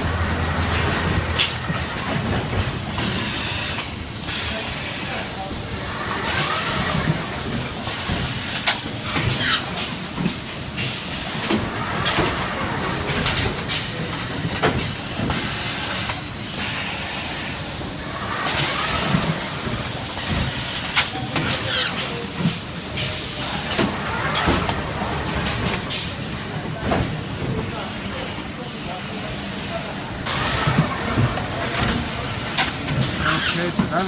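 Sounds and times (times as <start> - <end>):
clicks and clacks of machine parts: 6.3 - 16.2.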